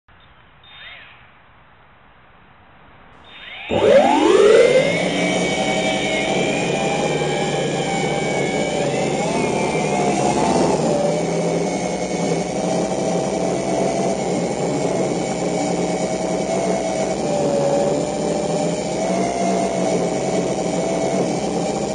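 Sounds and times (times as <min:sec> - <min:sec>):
drone propellers whining: 0:03.2 - 0:21.9.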